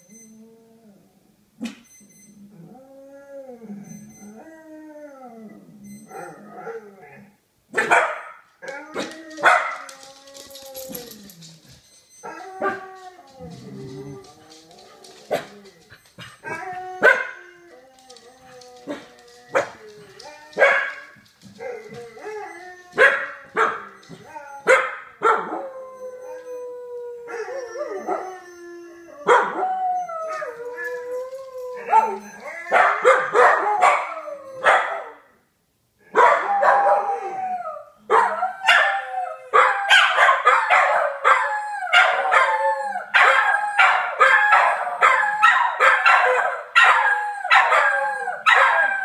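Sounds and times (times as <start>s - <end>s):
dogs yelping bark-howls: 2.6s - 7.2s, 7.8s - 35.3s, 36.1s - 49.0s
dogs howling: 12.3s - 35.2s, 36.3s - 49.0s.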